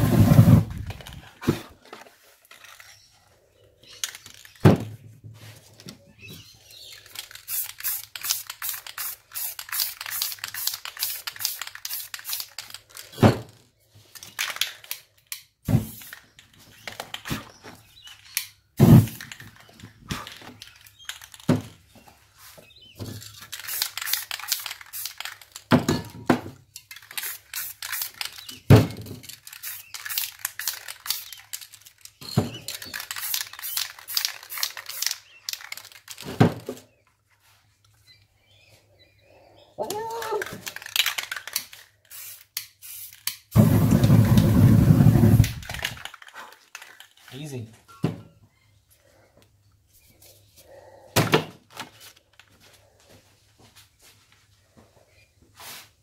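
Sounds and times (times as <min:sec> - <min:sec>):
spray paint cans hissing: 0:06.8 - 0:13.2, 0:15.6 - 0:16.8, 0:23.3 - 0:25.7, 0:26.9 - 0:28.6, 0:29.2 - 0:36.2, 0:40.0 - 0:46.2.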